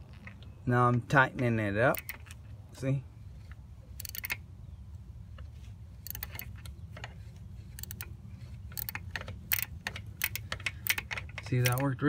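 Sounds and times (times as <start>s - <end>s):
hand ratchet clicking: 1.9s - 2.4s, 4.0s - 4.4s, 6.0s - 12.0s.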